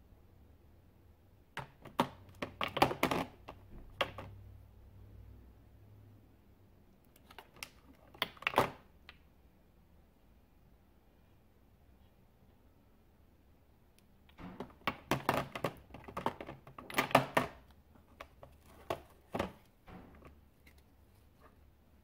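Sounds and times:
plastic bottles clicking together: 14.6s - 19.6s.

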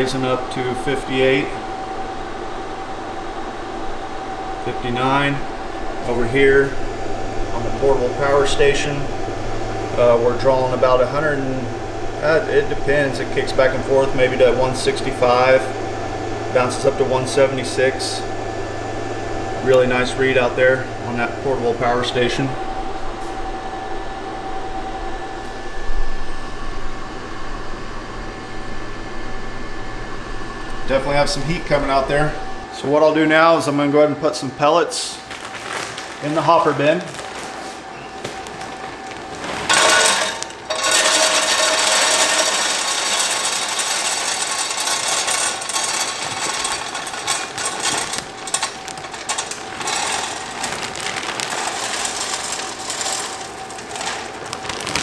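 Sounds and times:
fan whirring with thin whine: 0.0s - 55.0s
wood pellets pouring into metal hopper: 39.0s - 55.0s.

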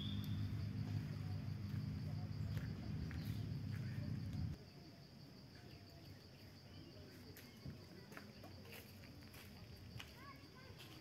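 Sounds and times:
insects shrilling: 0.0s - 0.7s
faint bird chirps: 0.0s - 1.2s, 5.5s - 8.1s.

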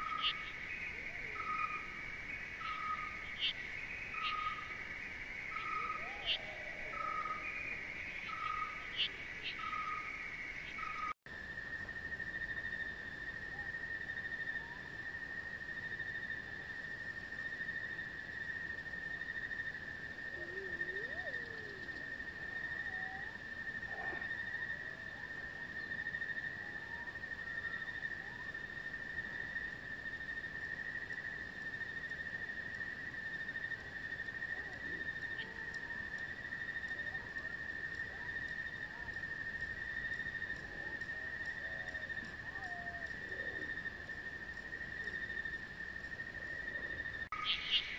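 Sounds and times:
faint bird chirps: 0.0s - 11.2s, 46.7s - 47.9s
high insect trill: 0.0s - 47.9s.

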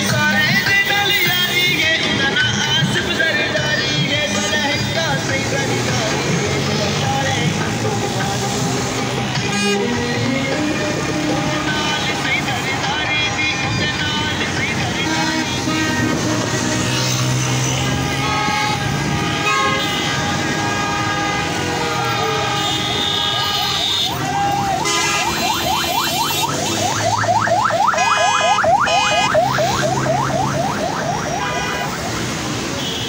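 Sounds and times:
engines and traffic: 0.0s - 33.0s
electronic yelp siren: 24.1s - 32.5s.

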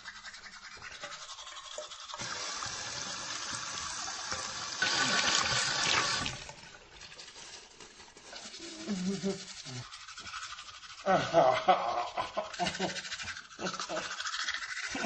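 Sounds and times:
rushing liquid gush: 2.1s - 6.6s.

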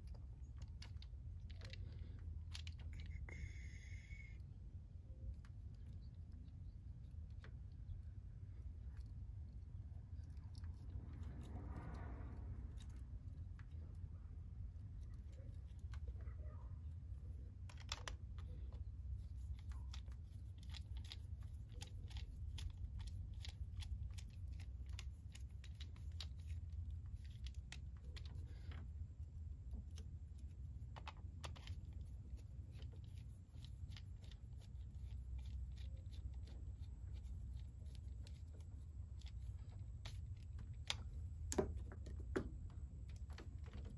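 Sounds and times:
low rumble: 7.7s - 15.4s
clicks and scrapes of wiring: 14.7s - 43.9s.

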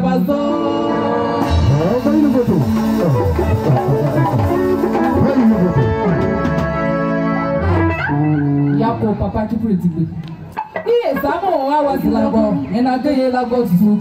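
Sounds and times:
electric guitar: 0.0s - 12.8s
sliding bass line: 1.0s - 9.4s
hand drums: 1.5s - 6.8s.

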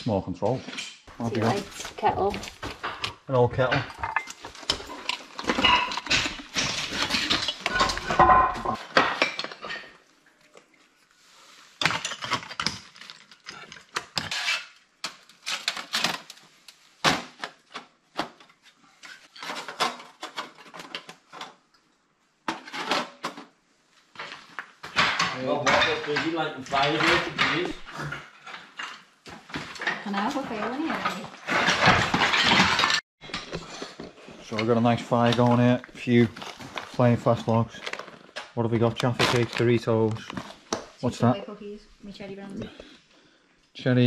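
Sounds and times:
metal clattering on slate: 0.6s - 10.0s, 24.2s - 34.8s.

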